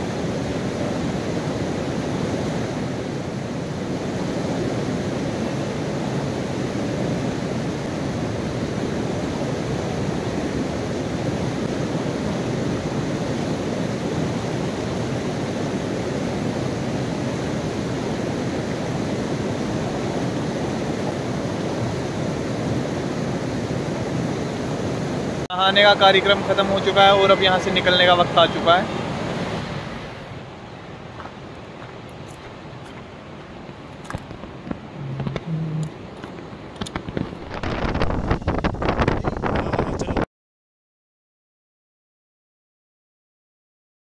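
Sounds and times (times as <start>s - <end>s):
water rushing over rocks: 0.0s - 39.6s.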